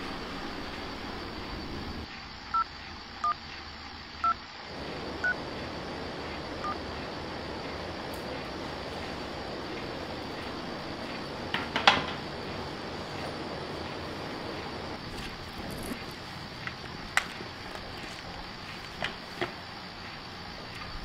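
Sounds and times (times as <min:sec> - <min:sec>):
steady background hiss: 0:00.0 - 0:21.0
phone keypad dialing beeps: 0:02.6 - 0:03.4.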